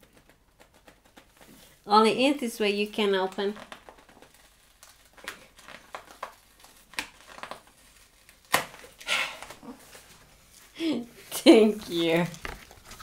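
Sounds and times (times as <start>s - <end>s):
packaging crinkling and rustling: 2.8s - 13.0s.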